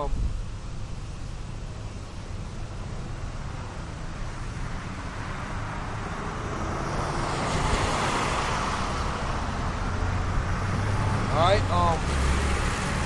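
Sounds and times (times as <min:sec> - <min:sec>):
wind rumble on microphone: 0:00.0 - 0:01.0
car passing: 0:01.7 - 0:13.0.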